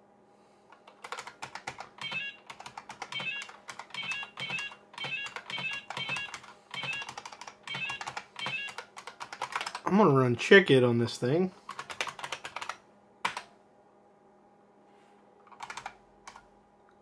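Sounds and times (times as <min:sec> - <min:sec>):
electronic chirping beeps: 0:02.0 - 0:02.4, 0:03.1 - 0:08.8.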